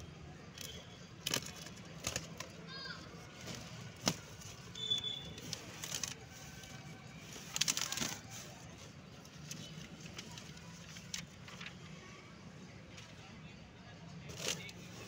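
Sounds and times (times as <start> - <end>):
cardboard crackling and tearing: 3.2 - 8.8, 14.3 - 15.0
cardboard flaps rustling: 3.3 - 4.8.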